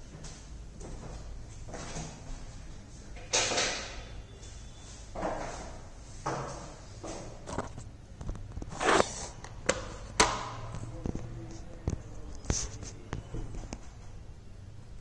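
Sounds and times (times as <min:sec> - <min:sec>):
steady low hum: 0:00.0 - 0:15.0
sharp clicks and knocks: 0:09.4 - 0:11.2.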